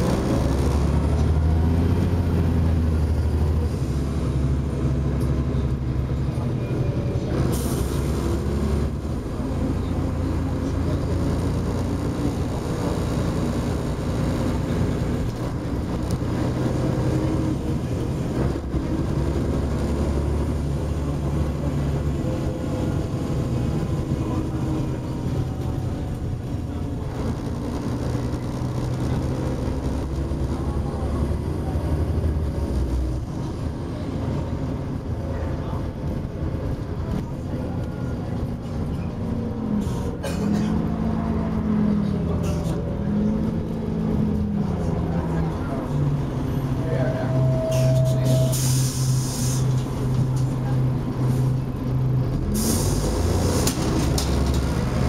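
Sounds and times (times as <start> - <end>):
bus engine running: 0.0 - 55.0
road noise: 0.0 - 55.0
short air hiss: 48.5 - 49.7.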